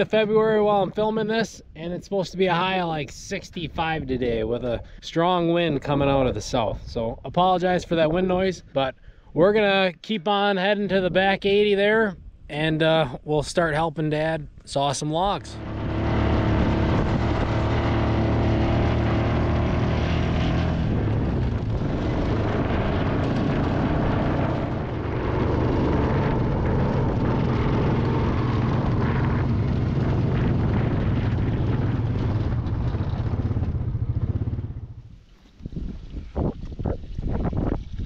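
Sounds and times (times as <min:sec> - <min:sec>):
wind buffeting microphone: 0:02.7 - 0:08.8, 0:14.2 - 0:38.0
atv engine running: 0:15.6 - 0:35.2.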